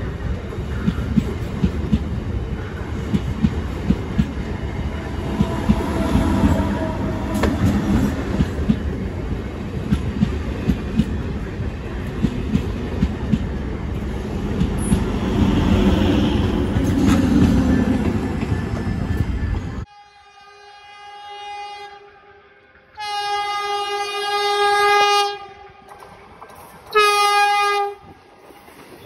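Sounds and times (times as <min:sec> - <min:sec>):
train rumbling past: 0:00.0 - 0:19.9.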